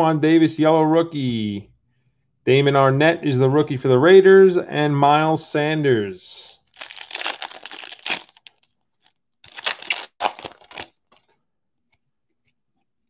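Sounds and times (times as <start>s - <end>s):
foil wrapper crinkling: 6.7s - 11.4s.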